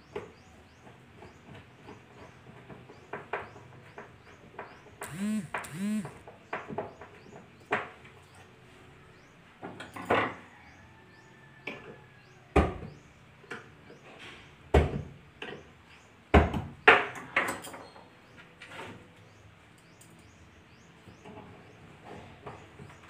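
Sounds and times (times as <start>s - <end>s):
knocks and clunks on wood: 16.3s - 17.2s.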